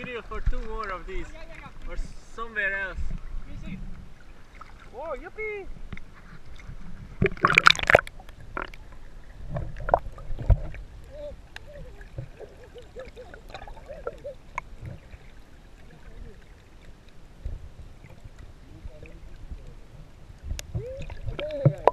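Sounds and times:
underwater knocks and thumps: 5.8s - 8.8s, 9.4s - 10.9s, 12.1s - 12.5s, 13.4s - 15.2s, 20.4s - 21.9s
underwater bubbles gurgling: 5.9s - 21.9s
loud splash into water: 7.2s - 8.7s.

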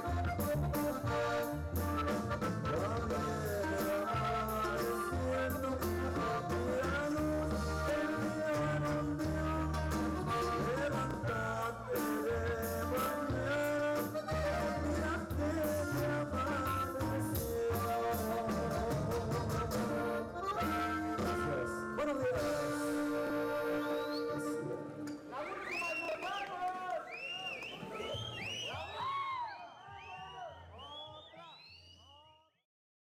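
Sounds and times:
live band music: 0.0s - 25.8s
man singing into a microphone: 2.4s - 26.0s.

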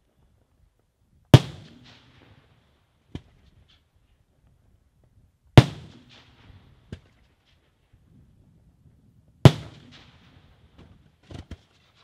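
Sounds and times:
quiet firework crack: 1.3s - 3.9s, 9.4s - 12.0s.

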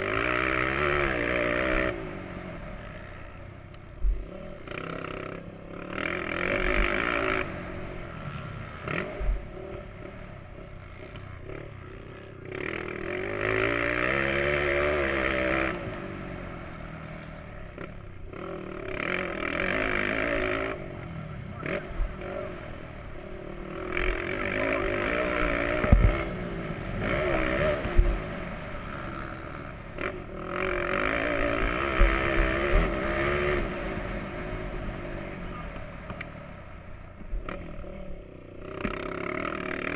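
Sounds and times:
motorbike engine revving: 0.0s - 39.9s
sharp thumps: 25.8s - 26.3s.

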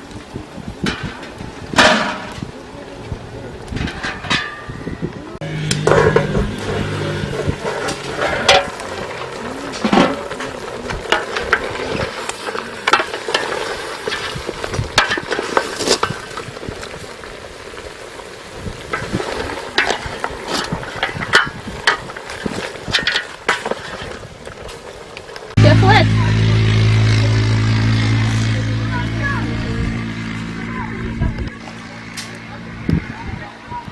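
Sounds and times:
metal lid scraping pot rim: 5.4s - 10.4s
wooden spoon scraping a pot: 5.4s - 16.9s, 18.8s - 25.0s
meat sizzling in a pot: 5.5s - 25.6s.

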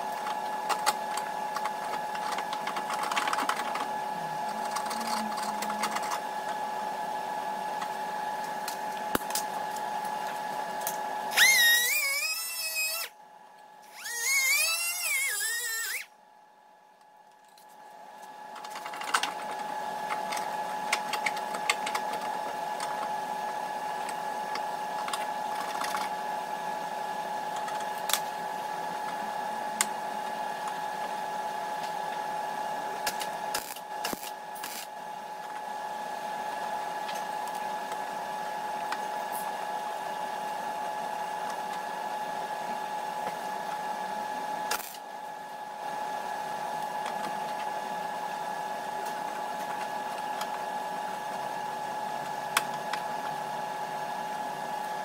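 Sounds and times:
steady mechanical hum: 0.0s - 55.0s
high-pitched tool whine: 11.3s - 13.2s, 13.8s - 16.1s, 33.5s - 34.9s.

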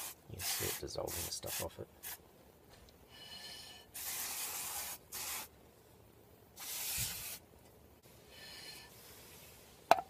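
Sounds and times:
aerosol can hissing: 0.0s - 2.2s, 4.0s - 5.5s, 6.6s - 7.4s.

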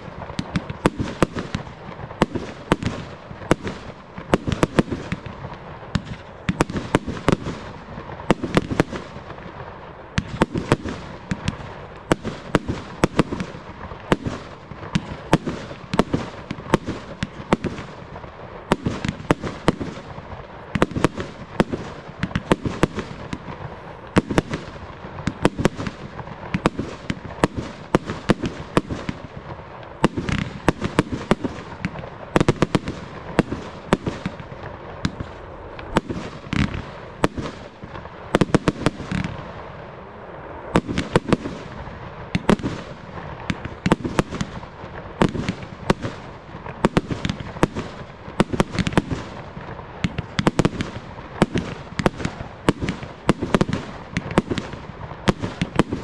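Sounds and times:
fireworks bursting with sharp bangs: 0.0s - 56.0s.

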